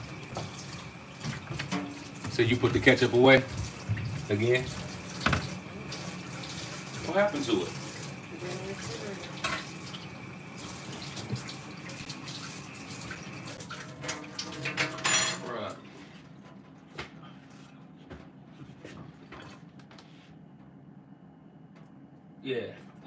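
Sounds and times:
tap running into sink: 0.2s - 5.6s, 11.0s - 12.0s
dishes clinking: 1.6s - 2.0s, 14.0s - 15.6s.

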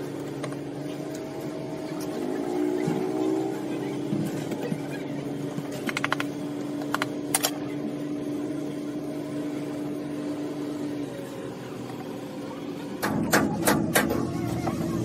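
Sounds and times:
steady machine hum: 0.0s - 15.0s
sharp clicks of handled objects: 5.5s - 7.6s.

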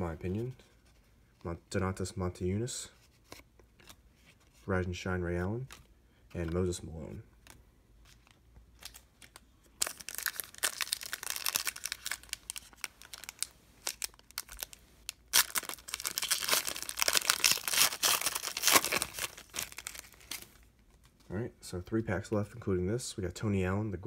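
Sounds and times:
foil wrapper tearing and crinkling: 8.8s - 20.6s.

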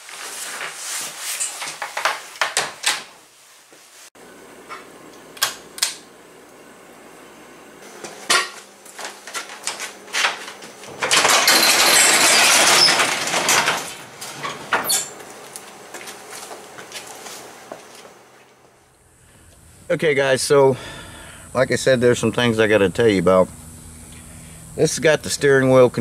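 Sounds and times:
garage door rattling: 10.9s - 15.2s.

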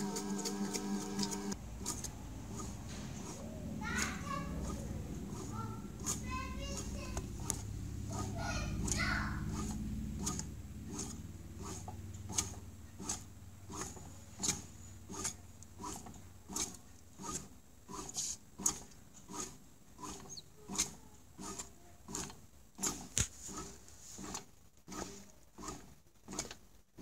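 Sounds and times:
low motor hum: 0.0s - 16.8s.

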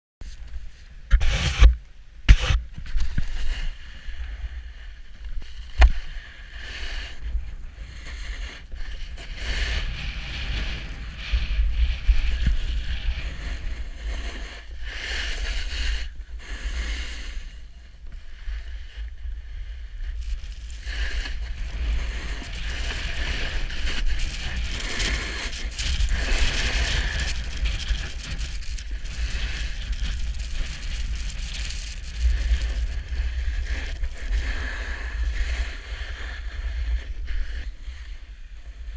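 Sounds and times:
snowboard scraping over snow: 0.2s - 1.7s, 2.3s - 38.9s
wind buffeting microphone: 7.1s - 16.2s, 18.1s - 38.3s.

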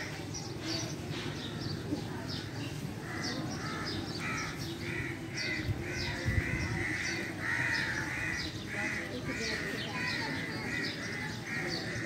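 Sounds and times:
crows cawing: 3.0s - 12.0s.

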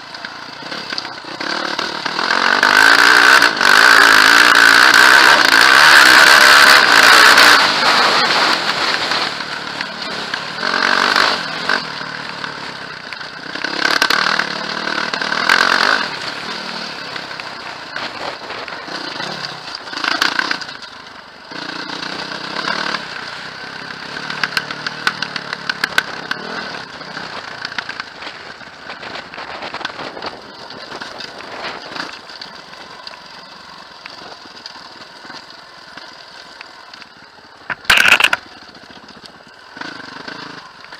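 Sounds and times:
bike tyres on gravel trail: 0.0s - 40.9s
sharp clicks and rattles: 24.0s - 40.9s.

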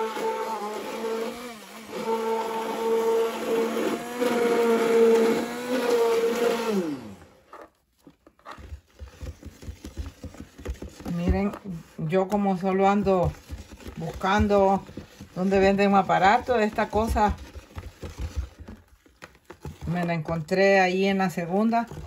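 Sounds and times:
immersion blender motor whine: 0.0s - 7.7s.

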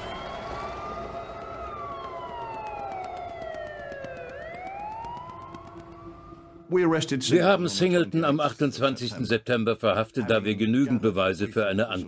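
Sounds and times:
police siren wailing: 0.0s - 6.8s.

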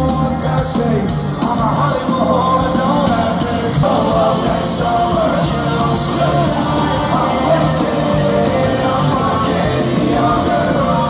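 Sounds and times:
drums: 0.0s - 11.0s
live rock band playing: 0.0s - 11.0s
person singing: 0.0s - 11.0s.

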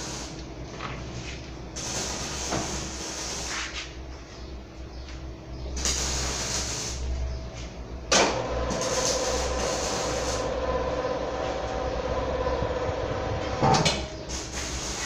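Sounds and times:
pipe rolling rumble with metallic ring: 9.2s - 14.2s.

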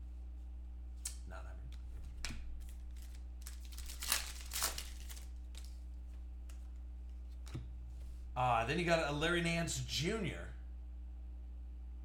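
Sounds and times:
steady low hum: 0.0s - 12.0s
foil wrappers rustling and crinkling: 2.6s - 5.8s.

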